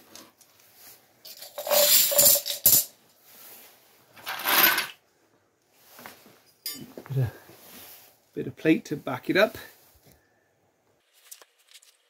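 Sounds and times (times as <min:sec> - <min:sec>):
metal hand tools clinking: 0:01.2 - 0:02.9, 0:06.5 - 0:07.0.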